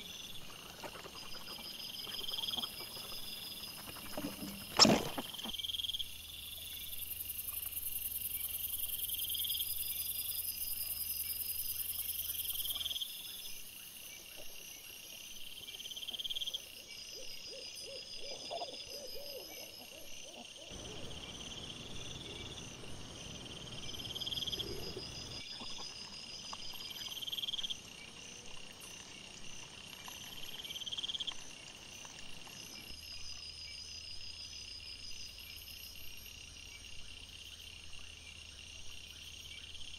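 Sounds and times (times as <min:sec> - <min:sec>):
night insects chirping: 0:00.0 - 0:39.9
wild boar grunting: 0:20.7 - 0:25.8.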